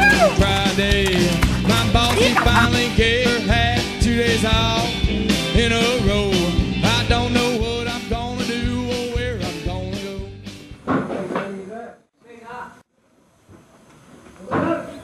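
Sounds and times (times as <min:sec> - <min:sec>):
song with singing over a band: 0:00.0 - 0:10.3.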